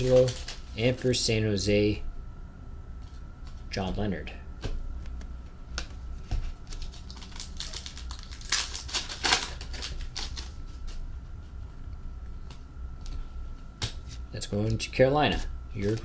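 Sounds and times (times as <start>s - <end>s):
card packs clicking and rustling: 0.0s - 1.2s, 6.6s - 10.6s
low room hum: 0.0s - 16.0s.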